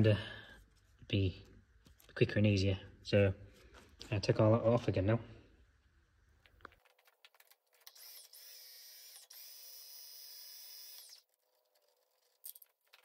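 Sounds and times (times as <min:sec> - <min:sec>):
small power tool motor whirring: 0:07.9 - 0:11.3.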